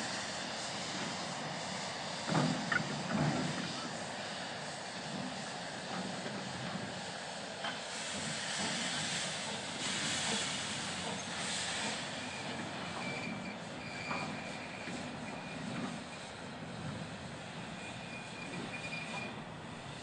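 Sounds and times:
steam locomotive running: 0:00.0 - 0:20.0
faint high wheel squeal: 0:02.4 - 0:04.4, 0:09.8 - 0:20.0.

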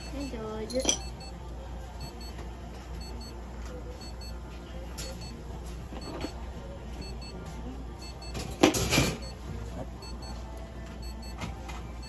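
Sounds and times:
electronic device beeping: 0:02.0 - 0:02.4, 0:03.0 - 0:03.3, 0:04.0 - 0:04.4, 0:05.0 - 0:07.4, 0:08.0 - 0:09.4, 0:10.0 - 0:10.4, 0:11.0 - 0:12.0.

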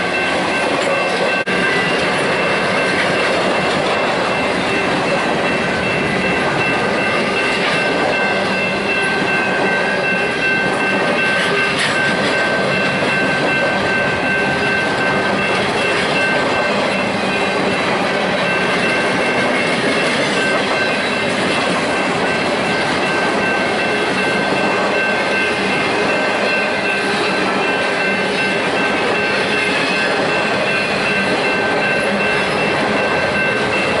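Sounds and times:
steel train wheels on rails: 0:00.0 - 0:34.0.

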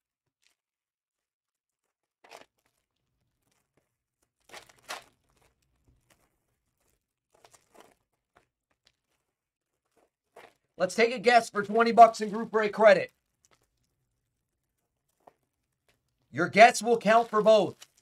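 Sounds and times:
card packaging tearing and crinkling: 0:01.7 - 0:10.7.

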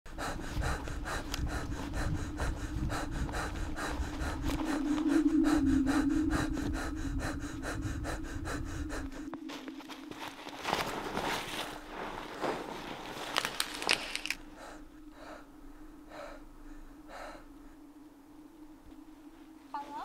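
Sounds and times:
person panting: 0:00.1 - 0:10.3, 0:14.2 - 0:17.8
low drone: 0:00.1 - 0:12.4, 0:13.3 - 0:20.0
footsteps crunching in snow: 0:09.3 - 0:14.4.

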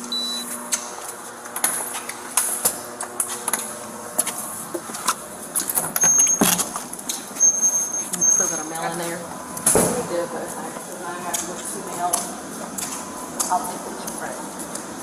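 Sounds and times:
short high beep: 0:00.1 - 0:00.5, 0:07.4 - 0:08.7.

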